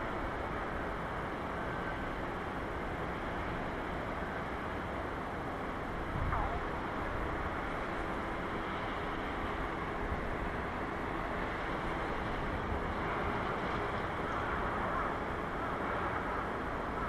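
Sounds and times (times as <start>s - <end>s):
distant outdoor hum: 0.0s - 17.0s
wind on microphone: 6.0s - 7.8s.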